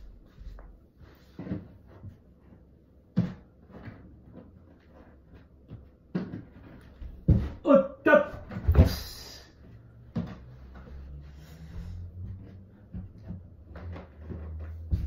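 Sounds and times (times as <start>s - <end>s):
dull thuds on wooden climbing wall: 5.7s - 7.7s, 8.3s - 9.2s, 12.2s - 15.0s.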